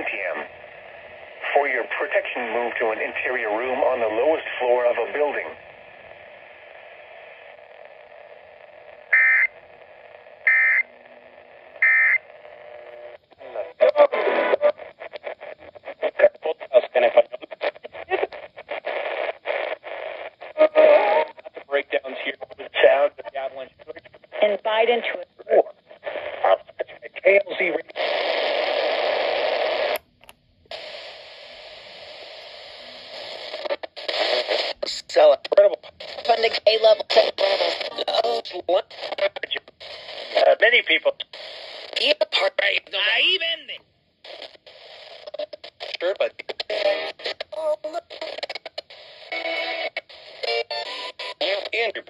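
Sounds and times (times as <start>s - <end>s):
buzzy data bursts from radio: 0.0s - 29.9s
radio static hiss: 0.0s - 30.0s, 30.7s - 52.0s.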